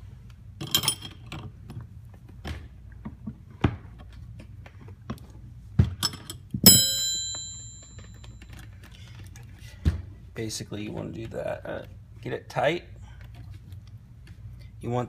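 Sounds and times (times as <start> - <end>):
wrench clanking against metal: 0.6 - 1.4.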